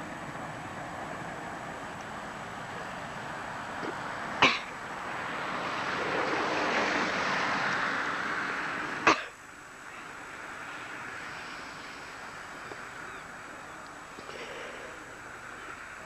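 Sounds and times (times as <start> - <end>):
electric train passing: 0.0 - 16.0.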